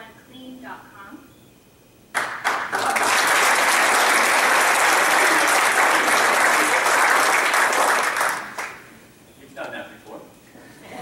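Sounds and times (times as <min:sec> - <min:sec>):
people applauding: 0:02.1 - 0:08.9.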